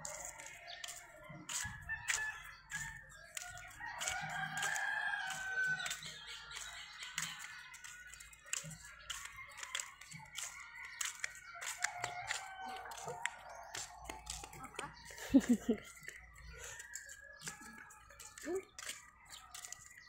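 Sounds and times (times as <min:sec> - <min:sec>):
rooster crowing: 0:11.7 - 0:14.4.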